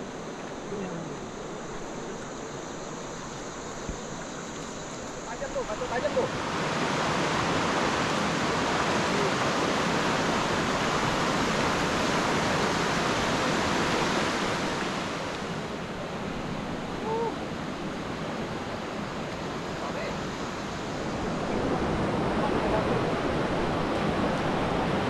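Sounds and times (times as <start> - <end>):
river water rushing over rapids: 0.0 - 25.0.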